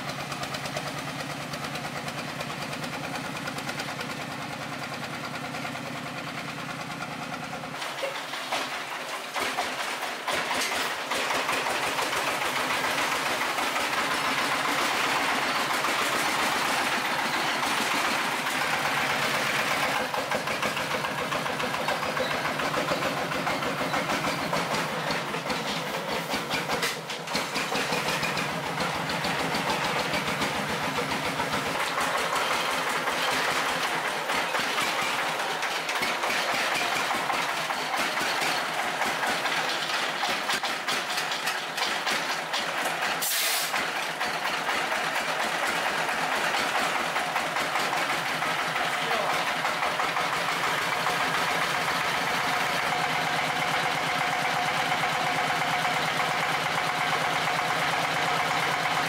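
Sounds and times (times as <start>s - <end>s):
short hiss: 43.2s - 43.8s.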